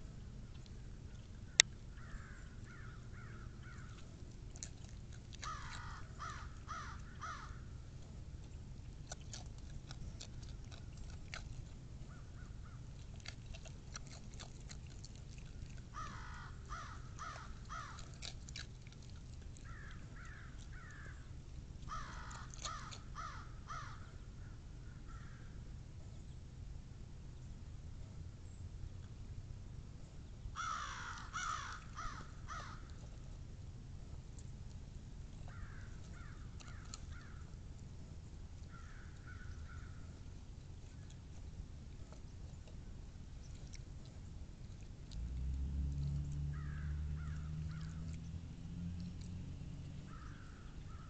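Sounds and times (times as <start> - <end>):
crows cawing: 2.0 - 3.8, 5.4 - 7.6, 16.0 - 18.0, 21.9 - 24.1, 30.6 - 32.9, 35.5 - 37.4, 38.7 - 39.9, 46.5 - 47.8, 50.1 - 51.0
fox crunching chips from steel bowl: 3.6 - 12.1, 12.8 - 23.3, 47.2 - 50.4.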